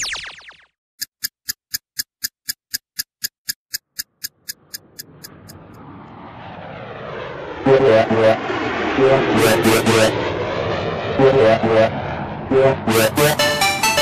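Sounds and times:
clock ticking: 0:01.0 - 0:05.8
rising swell of noise: 0:04.6 - 0:14.0.

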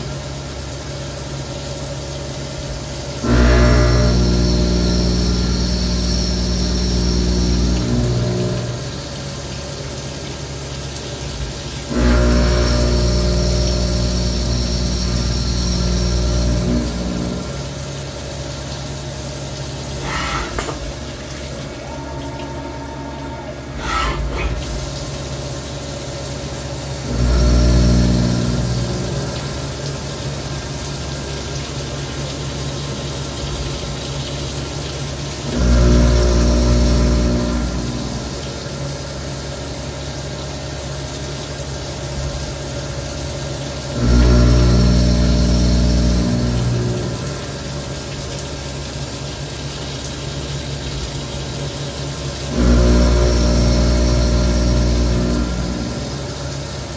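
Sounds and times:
coolant hissing and splashing: 0:00.0 - 0:56.9
machine motor hum: 0:02.6 - 0:09.8, 0:11.6 - 0:30.7, 0:35.4 - 0:40.0, 0:41.8 - 0:48.2, 0:52.0 - 0:56.9
short sharp machine sounds: 0:20.0 - 0:21.0, 0:21.8 - 0:24.8.

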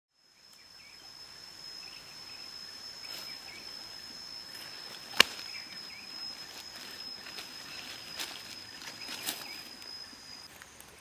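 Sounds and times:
faint chirps: 0:00.1 - 0:11.0
insect high-pitched trill: 0:00.1 - 0:11.0.

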